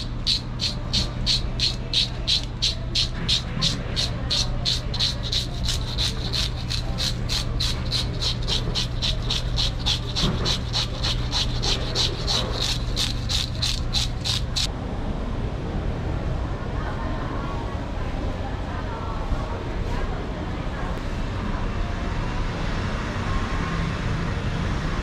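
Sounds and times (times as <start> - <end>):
metal scaler scraping fish scales: 0.0 - 14.7
steady low hum: 0.0 - 18.2.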